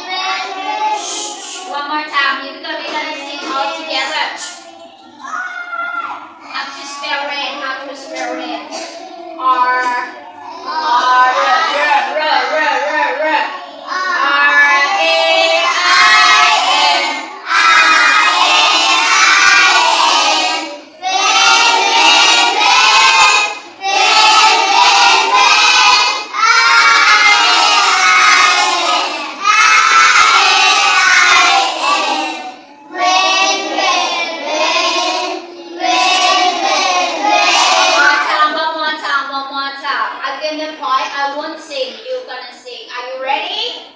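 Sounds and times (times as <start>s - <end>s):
young children singing: 0.0s - 1.8s, 8.0s - 38.8s.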